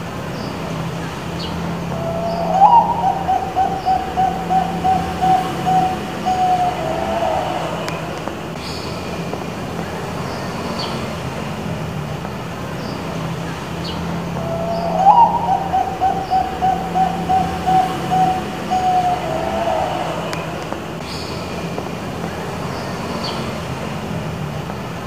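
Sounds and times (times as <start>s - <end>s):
low steady hum: 0.0s - 10.3s, 13.2s - 21.1s
dove cooing: 1.8s - 8.4s, 14.2s - 20.9s.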